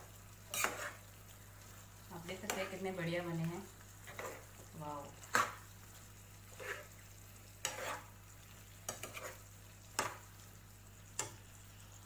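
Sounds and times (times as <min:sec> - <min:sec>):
spatula scraping frying pan: 0:00.4 - 0:02.9, 0:04.0 - 0:05.7, 0:06.4 - 0:10.3.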